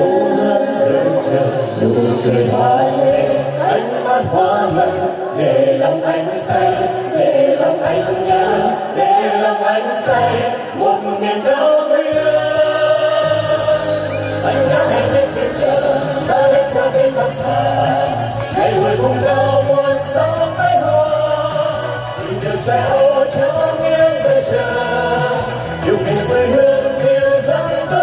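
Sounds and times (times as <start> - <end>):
person singing with instrumental backing: 0.0 - 28.0.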